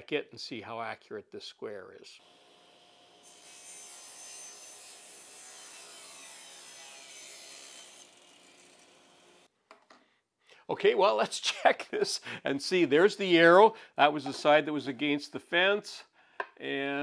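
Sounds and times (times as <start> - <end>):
saw blade cutting wood: 2.2 - 9.5.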